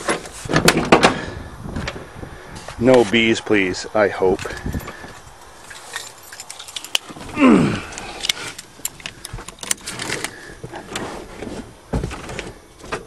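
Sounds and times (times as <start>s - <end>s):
keys jingling: 4.7s - 7.2s.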